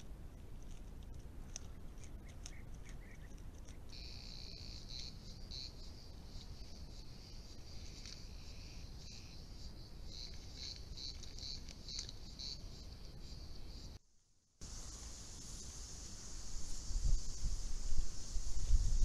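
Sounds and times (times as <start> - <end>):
faint clicks: 0.0 - 3.9
insects shrilling in chorus: 3.9 - 14.0
microphone hiss and rumble: 14.6 - 19.0.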